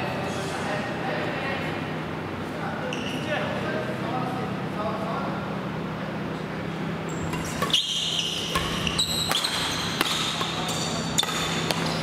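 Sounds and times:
steady low hum: 0.0s - 12.0s
shoes squeaking on gym floor: 7.1s - 12.0s
rackets striking shuttlecock: 7.2s - 12.0s.

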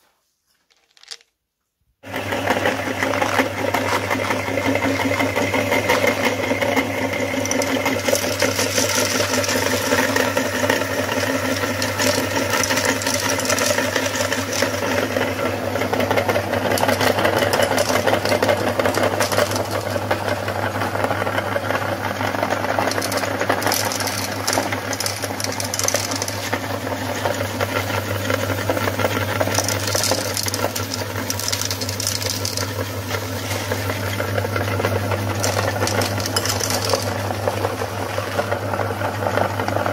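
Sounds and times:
meat grinder motor humming: 2.0s - 39.9s
candy crunching and crackling: 2.8s - 6.1s, 7.3s - 15.0s, 16.7s - 20.1s, 22.7s - 26.5s, 29.1s - 32.8s, 35.2s - 37.4s.

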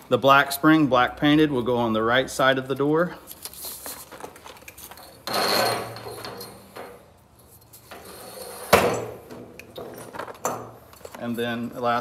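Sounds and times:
metallic spring scraping on shaft: 5.2s - 6.7s.

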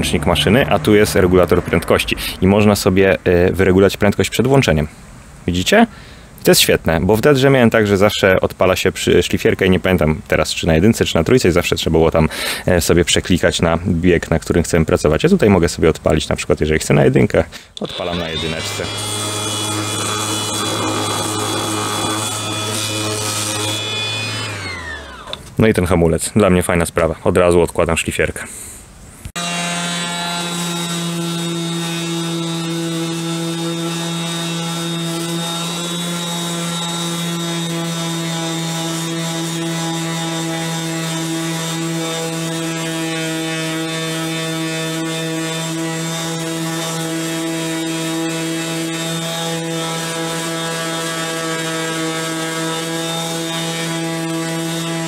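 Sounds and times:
orbital sander on wood: 17.8s - 25.4s, 29.4s - 55.0s
sander winding down whine: 17.8s - 25.4s.

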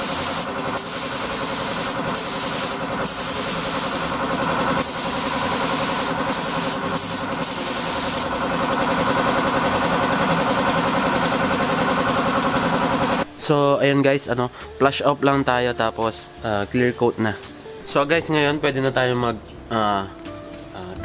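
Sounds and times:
spray gun hissing: 0.0s - 8.6s
air compressor running: 0.0s - 13.3s.

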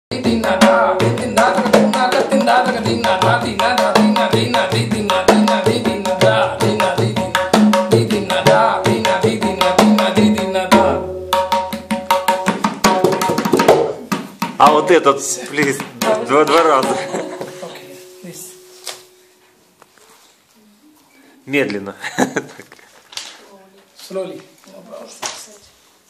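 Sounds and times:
tabla rapid strokes: 0.1s - 18.2s
ringing bass drum strokes: 16.9s - 19.7s.

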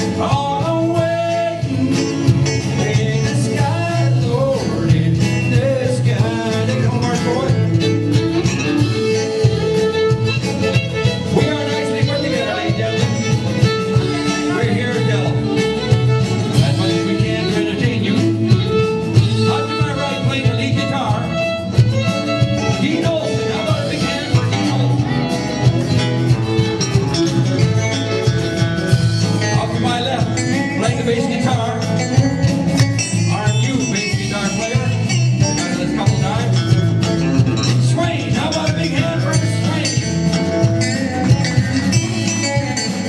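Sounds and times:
electric bass: 0.0s - 43.0s
electric guitar: 0.0s - 43.0s
steady drum beat: 0.0s - 43.0s
bowed fiddle: 5.6s - 43.0s.

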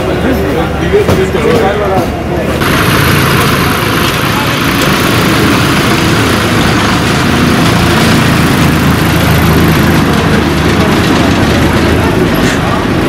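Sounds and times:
bus engine idling: 0.0s - 13.0s.

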